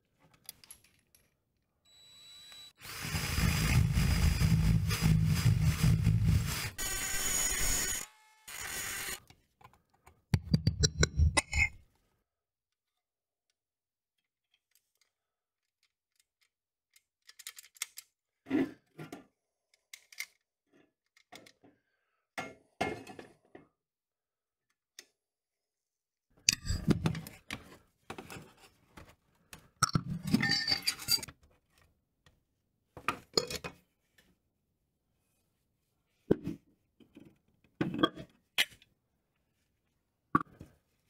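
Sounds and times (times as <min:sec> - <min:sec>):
metal toy parts clinking: 0:30.3 - 0:31.3.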